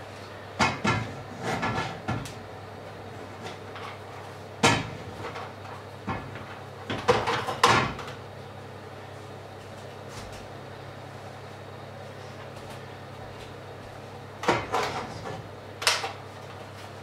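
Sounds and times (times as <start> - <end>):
steady low hum: 0.0 - 17.0
kitchen knocks and clatters: 0.6 - 2.4, 3.4 - 8.2, 14.4 - 16.2.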